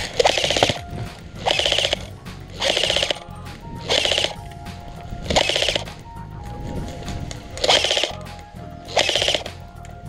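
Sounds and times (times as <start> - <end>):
airsoft gun firing bursts: 0.0 - 4.4, 5.3 - 6.0, 7.6 - 8.3, 8.9 - 9.6.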